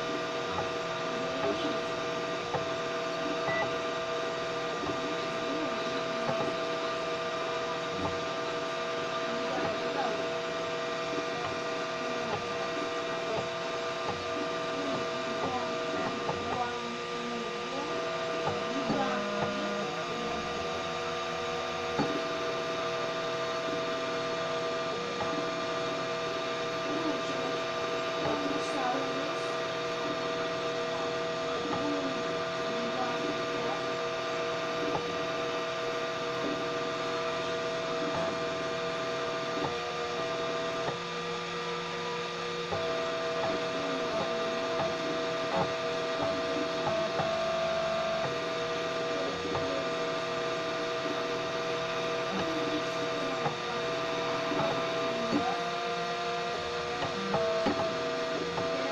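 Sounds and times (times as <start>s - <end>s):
stepper motors humming and whining: 0.0s - 58.9s.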